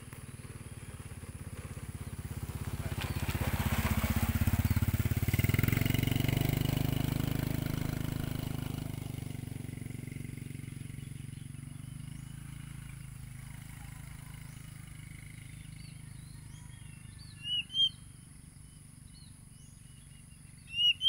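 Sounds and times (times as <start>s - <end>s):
vehicle engine passing by: 0.0s - 21.0s.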